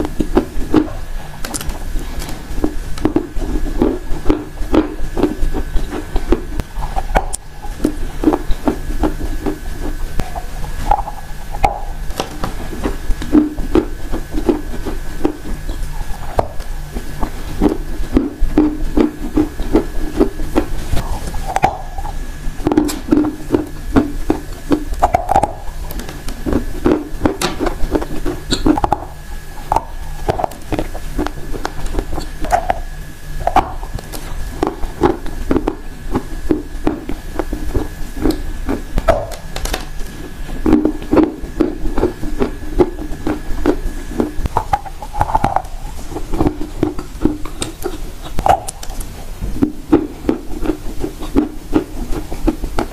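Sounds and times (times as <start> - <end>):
crunching and chewing clay: 0.0 - 52.9.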